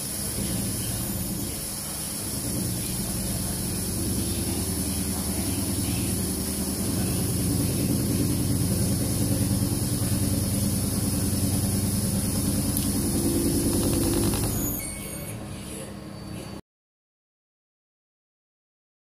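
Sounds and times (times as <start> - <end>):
wood lathe humming and pulsing: 0.0 - 14.9.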